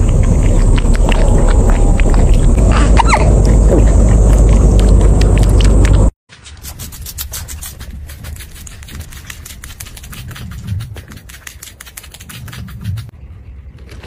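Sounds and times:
low rumble: 0.0 - 6.2
rabbit chewing crunchily: 0.0 - 13.2.

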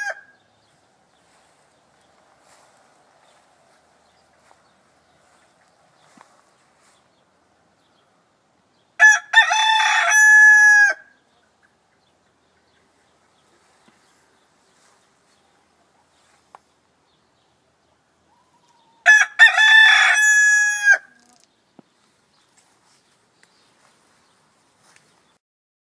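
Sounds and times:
rooster crowing: 0.0 - 0.4, 9.0 - 11.1, 18.4 - 21.2.

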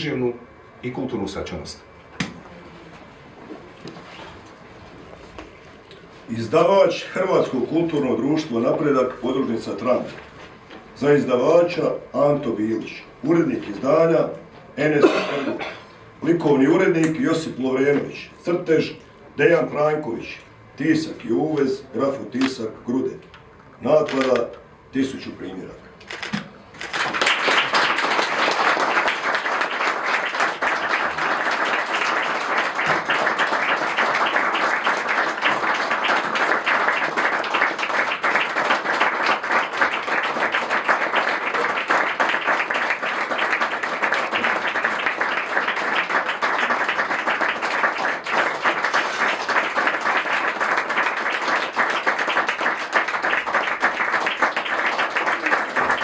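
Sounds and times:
audience applauding: 26.8 - 56.0.

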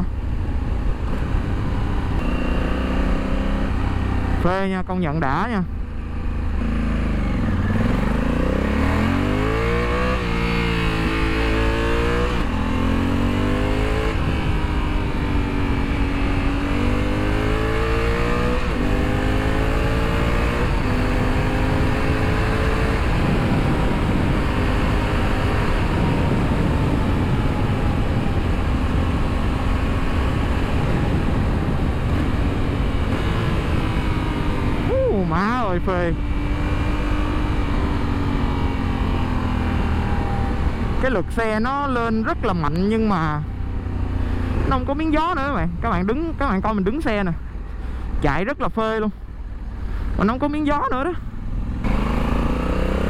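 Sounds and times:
motorcycle engine revving: 0.8 - 53.0
wind rush: 6.2 - 42.9.

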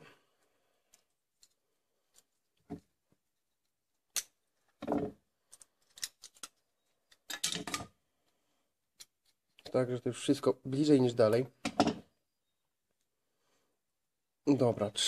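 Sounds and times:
aluminium cups clicking and crinkling: 3.5 - 7.9.

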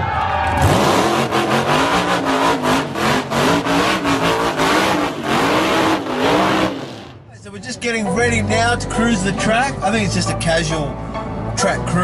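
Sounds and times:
car engine revving: 0.5 - 7.3.

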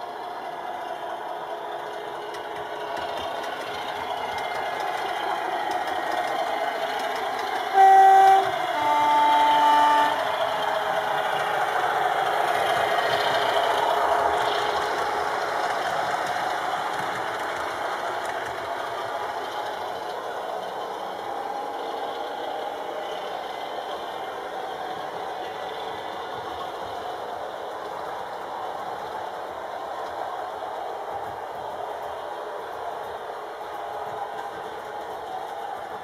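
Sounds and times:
diesel locomotive engine running: 0.0 - 36.0
two-tone train horn: 7.7 - 10.4.

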